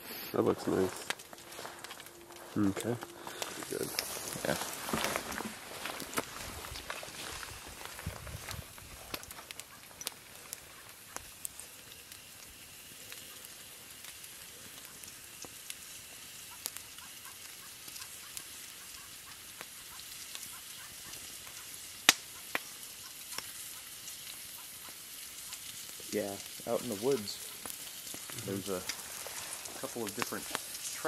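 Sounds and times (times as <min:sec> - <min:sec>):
campfire crackling and popping: 0:00.0 - 0:31.0
meat sizzling in a pan: 0:05.4 - 0:31.0.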